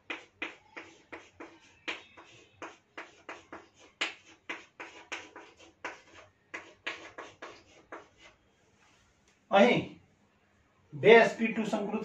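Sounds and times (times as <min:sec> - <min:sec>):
chalk writing on a chalkboard: 0:00.0 - 0:08.5.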